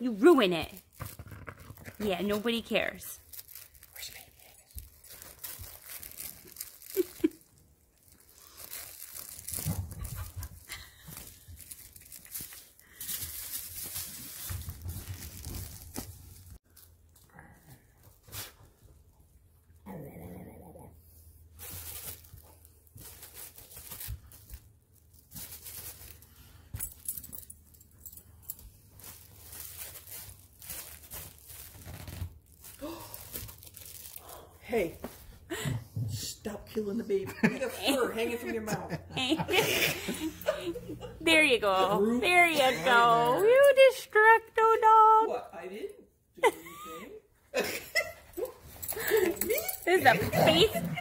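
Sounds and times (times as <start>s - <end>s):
fabric ripping and rustling: 3.2s - 16.9s, 28.9s - 34.2s.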